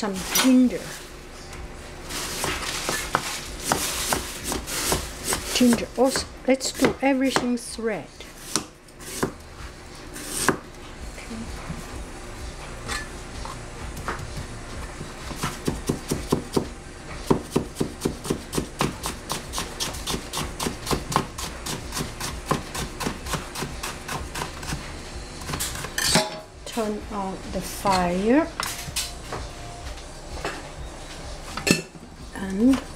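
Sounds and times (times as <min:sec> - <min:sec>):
cleaver chopping on cutting board: 0:02.4 - 0:07.5, 0:08.5 - 0:09.4, 0:15.3 - 0:16.7, 0:17.3 - 0:24.8.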